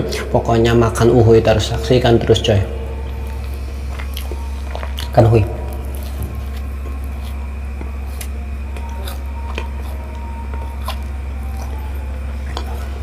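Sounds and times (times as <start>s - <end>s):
low hum: 0.0s - 13.0s
crisp crunching while chewing: 3.4s - 13.0s.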